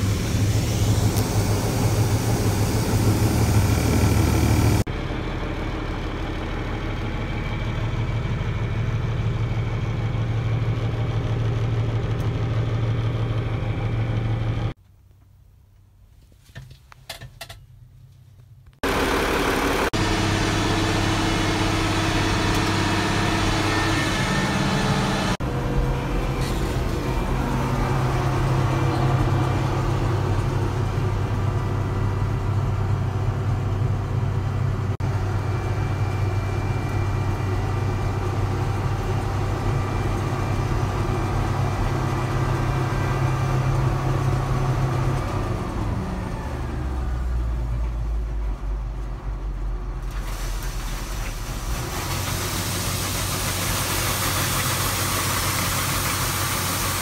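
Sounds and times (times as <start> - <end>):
grain pouring hiss: 0.0 - 4.8, 50.0 - 57.0
combine engine running: 0.0 - 14.8, 18.8 - 57.0.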